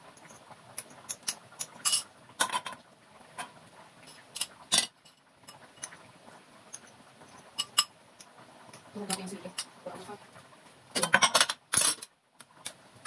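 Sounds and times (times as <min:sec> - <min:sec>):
utensils clinking against bowl: 0:01.1 - 0:02.8, 0:07.6 - 0:07.9, 0:11.0 - 0:12.1.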